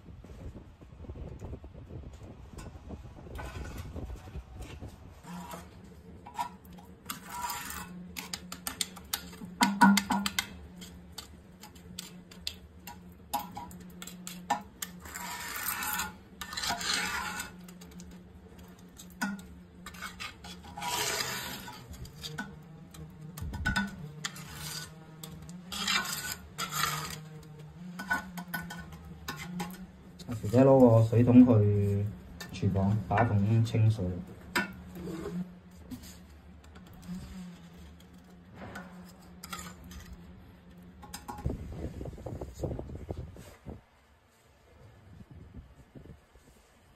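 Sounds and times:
steady low hum: 0.0 - 46.9
trowel scraping wet cement: 3.4 - 41.5.

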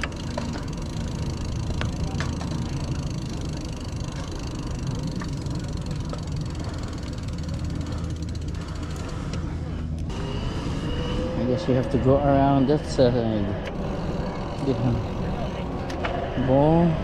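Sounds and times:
light bike clicks: 0.0 - 10.1
bike tyres rumbling on concrete: 0.0 - 16.9.

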